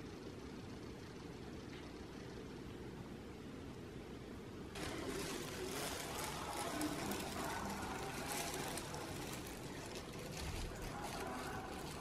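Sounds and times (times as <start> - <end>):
low steady rumble: 0.0 - 12.0
plastic gloves crinkling: 4.7 - 12.0.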